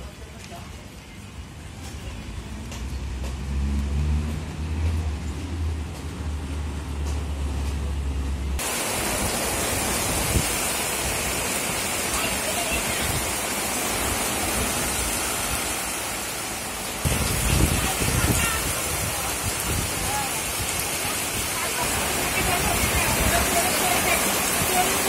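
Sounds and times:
heavy rain falling: 0:00.0 - 0:25.0
wind buffeting microphone: 0:09.0 - 0:11.3, 0:17.0 - 0:25.0.

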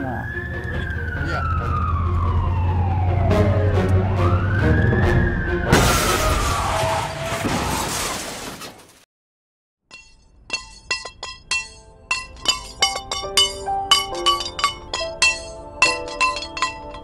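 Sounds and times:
police siren falling in pitch: 0:00.2 - 0:07.1
glass shattering: 0:05.7 - 0:08.9, 0:09.9 - 0:17.0
crash of crumpling metal: 0:05.7 - 0:09.0
ringing bell-like plinks: 0:09.9 - 0:17.0.

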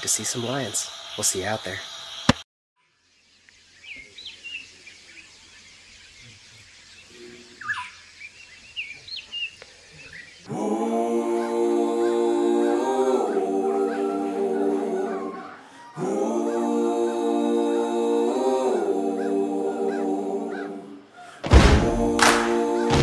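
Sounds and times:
background hiss: 0:00.0 - 0:02.3
birds whistling calls: 0:06.1 - 0:10.5
sung vocal music: 0:10.4 - 0:23.0.

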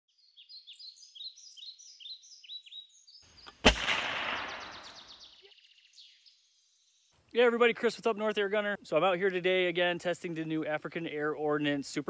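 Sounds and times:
birds chirping: 0:00.1 - 0:12.0
echoing gunshot: 0:03.5 - 0:05.3.

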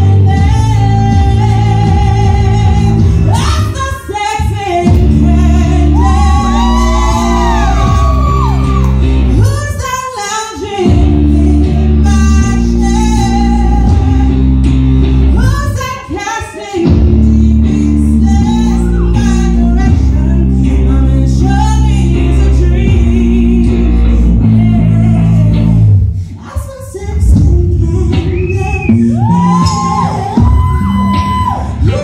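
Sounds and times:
backing music with heavy bass: 0:00.0 - 0:10.0, 0:10.7 - 0:16.2, 0:16.8 - 0:26.3, 0:27.0 - 0:32.0
woman singing into a microphone: 0:00.0 - 0:14.6, 0:15.3 - 0:32.0.

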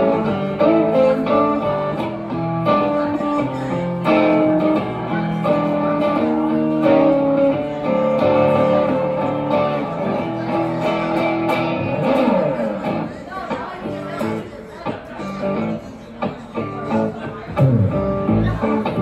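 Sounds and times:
electric guitar playing: 0:00.0 - 0:14.6, 0:15.2 - 0:19.0.

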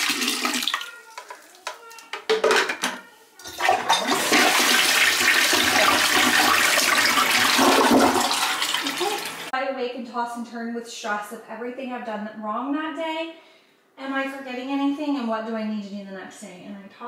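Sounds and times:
water rushing: 0:04.0 - 0:09.5.

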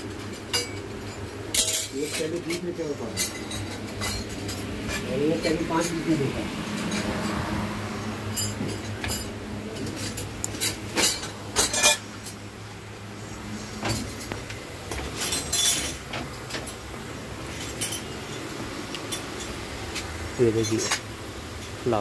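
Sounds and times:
steady low hum: 0:00.0 - 0:22.0
metal parts clinking: 0:00.2 - 0:06.1, 0:08.3 - 0:12.4, 0:13.8 - 0:16.8, 0:17.5 - 0:19.6, 0:20.5 - 0:21.0.

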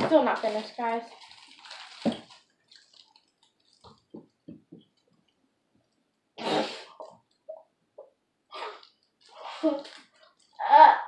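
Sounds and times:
girl chewing food: 0:01.1 - 0:06.1, 0:07.0 - 0:10.6.

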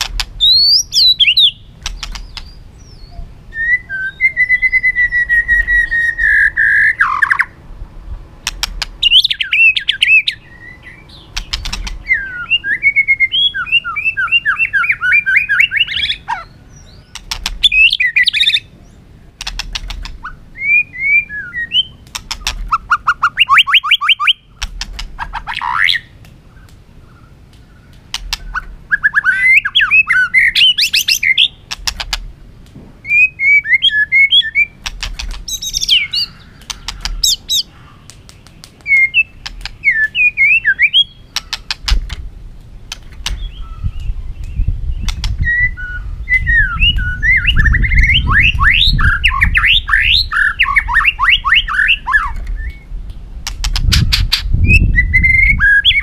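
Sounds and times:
sharp bird clicks: 0:00.0 - 0:02.6, 0:08.4 - 0:12.8, 0:14.3 - 0:18.6, 0:19.4 - 0:45.6, 0:46.8 - 0:54.6
bird singing whistled phrases: 0:00.4 - 0:07.6, 0:09.0 - 0:18.7, 0:20.2 - 0:24.5, 0:28.4 - 0:31.6, 0:33.0 - 0:34.8, 0:35.5 - 0:37.7, 0:38.8 - 0:41.6, 0:43.4 - 0:52.9, 0:54.0 - 0:56.0.

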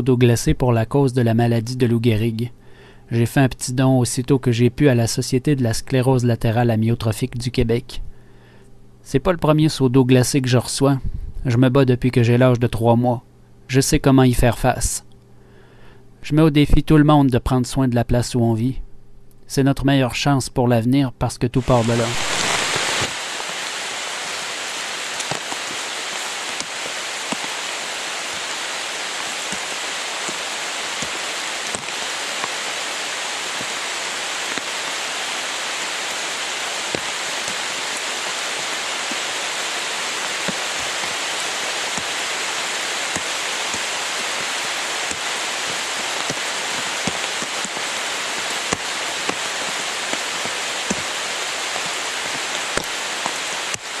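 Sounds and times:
steady rain hiss: 0:00.0 - 0:13.0, 0:21.5 - 0:54.0
raindrops ticking close by: 0:22.2 - 0:54.0.

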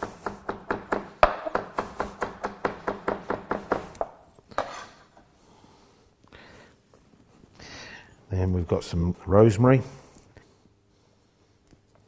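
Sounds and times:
knife chopping on plastic board: 0:00.0 - 0:04.8
knife scrape: 0:04.6 - 0:05.2.

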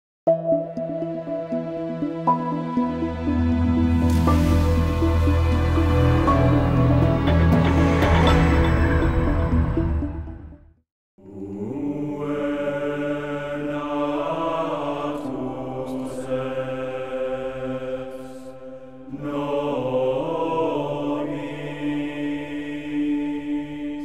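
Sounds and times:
chant-like vocal drone: 0:11.2 - 0:24.0.

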